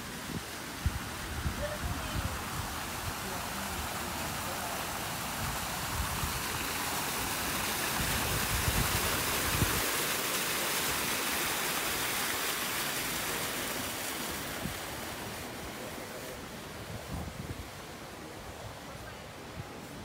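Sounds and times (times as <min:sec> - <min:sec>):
fountain splashing: 0:00.0 - 0:20.0
water pouring down a wall: 0:00.8 - 0:16.3.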